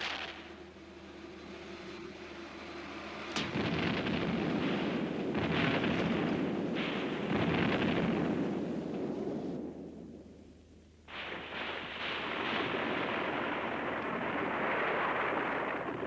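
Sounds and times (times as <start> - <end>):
shell explosions: 0.0 - 0.6, 3.3 - 16.0
heavy gunfire: 3.4 - 10.1, 11.1 - 16.0.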